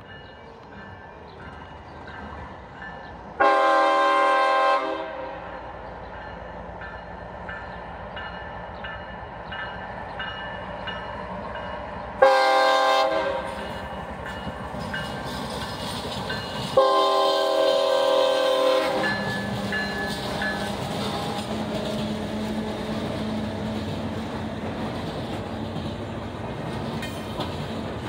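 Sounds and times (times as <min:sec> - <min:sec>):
locomotive bell ringing: 0:00.0 - 0:03.2, 0:06.1 - 0:12.0, 0:13.4 - 0:22.1
train rumble: 0:00.0 - 0:28.0
locomotive air horn blasts: 0:03.4 - 0:05.4, 0:12.2 - 0:13.7, 0:16.7 - 0:19.3.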